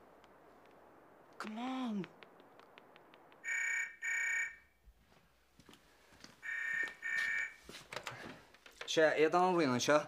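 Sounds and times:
telephone ringing: 0:03.4 - 0:04.7, 0:06.4 - 0:07.6.

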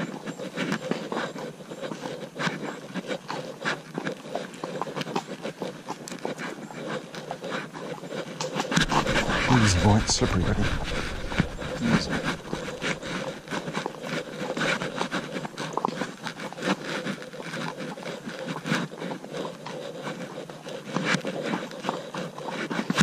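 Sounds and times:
hooves crunching through leaves: 0:08.5 - 0:16.2.

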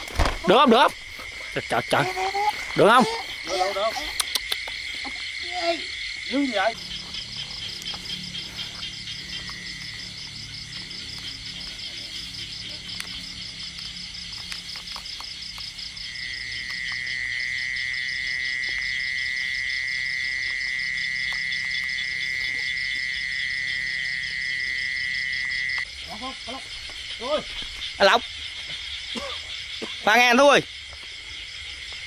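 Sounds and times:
crickets pulsing trill: 0:00.0 - 0:32.0
steady low-pitched insect trill: 0:00.0 - 0:32.0.

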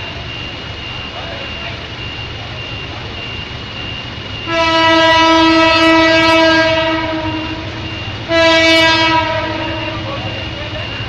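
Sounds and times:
train horn blasts: 0:04.5 - 0:10.2.

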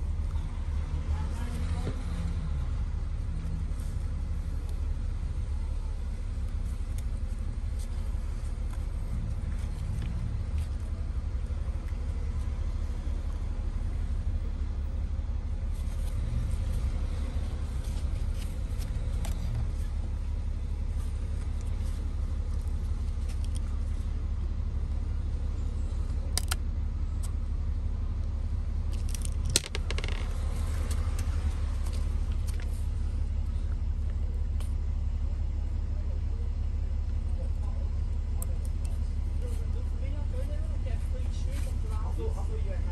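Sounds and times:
small parts clicking and clinking: 0:28.9 - 0:30.4.

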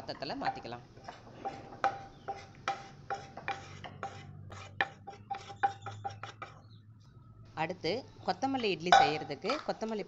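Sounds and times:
spatula scraping and knocking pan: 0:00.4 - 0:06.7.

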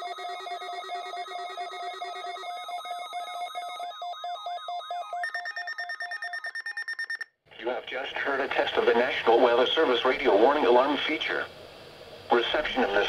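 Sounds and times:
weather alert radio alarms beeping: 0:00.0 - 0:07.2
high-pitched beep: 0:00.0 - 0:07.3.

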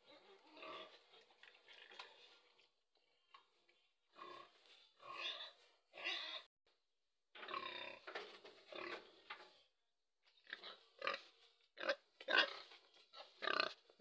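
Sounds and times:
pig grunting: 0:00.1 - 0:02.3.

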